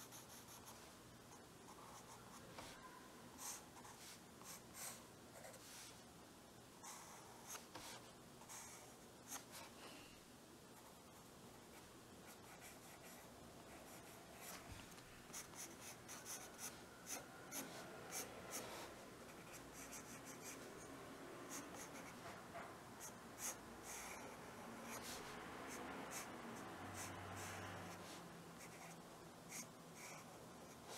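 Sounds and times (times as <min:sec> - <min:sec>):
pencil scratching on paper: 0:15.3 - 0:20.9, 0:21.5 - 0:22.4, 0:23.0 - 0:30.9.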